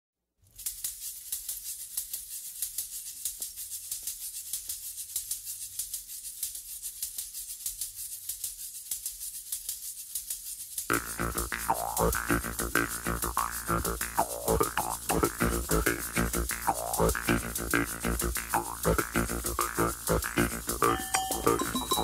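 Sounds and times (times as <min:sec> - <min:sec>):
shaker playing fast rhythm: 0:00.5 - 0:22.0
faint low bass: 0:10.9 - 0:22.0.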